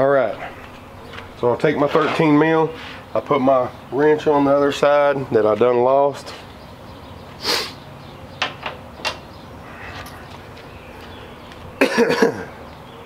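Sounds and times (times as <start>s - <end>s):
rustle and metal clicks: 8.4s - 10.8s.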